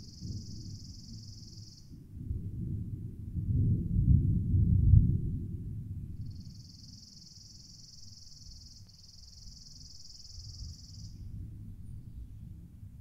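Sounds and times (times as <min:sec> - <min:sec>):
high insect trill: 0:00.0 - 0:01.9, 0:06.2 - 0:11.2
faint low rumble: 0:00.0 - 0:13.0.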